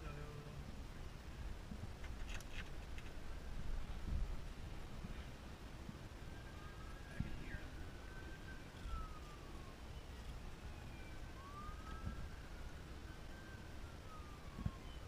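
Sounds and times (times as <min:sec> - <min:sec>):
distant emergency siren wailing: 0:04.6 - 0:15.0.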